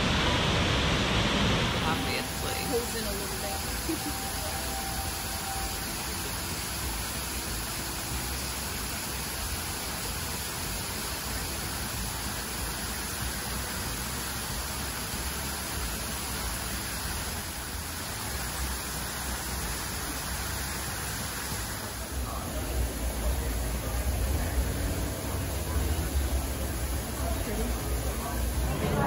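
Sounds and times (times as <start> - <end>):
low rumble: 0.0 - 6.5
steady rushing hiss: 0.0 - 29.0.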